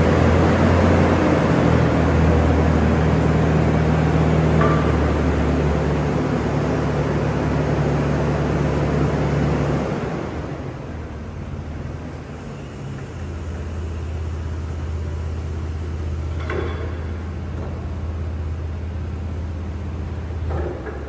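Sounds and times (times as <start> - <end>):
forklift engine humming: 0.0 - 21.0.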